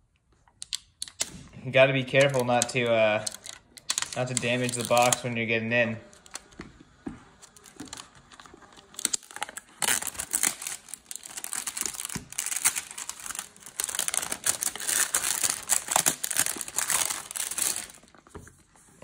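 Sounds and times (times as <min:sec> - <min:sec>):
plastic shrink-wrap crinkling and tearing: 0:01.7 - 0:05.4, 0:07.4 - 0:18.2.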